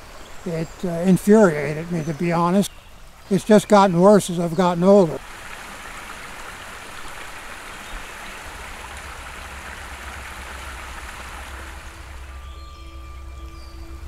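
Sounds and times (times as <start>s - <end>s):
stream water over stones: 0.0s - 14.0s
low steady hum: 8.2s - 14.0s.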